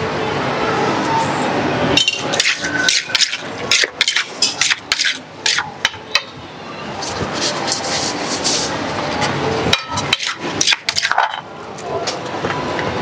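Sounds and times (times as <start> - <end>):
metal spoon scraping a mortar: 2.2 - 6.0, 7.0 - 8.8, 9.8 - 11.4.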